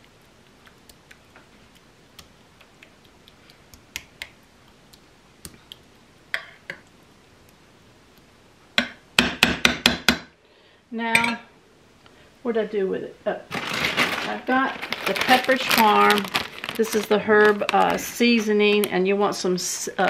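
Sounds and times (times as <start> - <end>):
spoon tapping on glass: 11.1 - 11.4.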